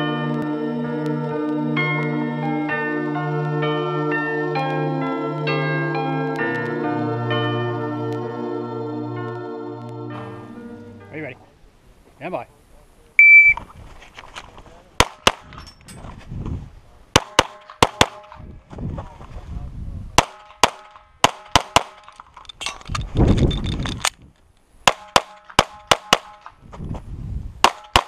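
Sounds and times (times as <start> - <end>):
brief ringing tone: 13.2 - 13.6
pistol shots: 15.0 - 15.6, 17.1 - 18.4, 20.2 - 22.2, 24.8 - 26.6, 27.6 - 28.0.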